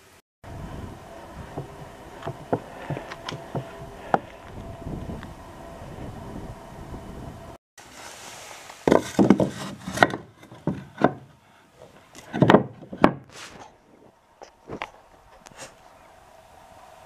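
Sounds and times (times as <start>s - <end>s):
wood scraping: 0.8s - 6.0s, 7.8s - 15.9s
wooden board knocking: 8.9s - 11.3s, 12.3s - 13.2s.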